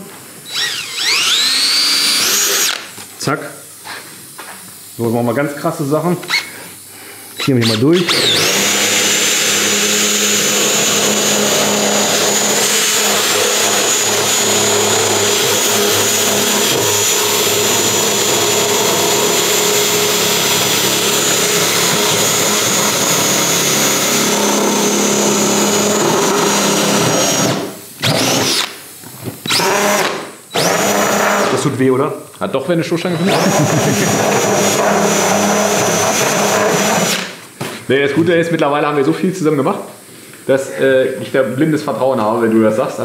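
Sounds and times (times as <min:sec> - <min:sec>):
cordless drill cutting plastic: 0:00.4 - 0:03.0, 0:07.4 - 0:28.8, 0:29.4 - 0:31.6, 0:33.0 - 0:37.4.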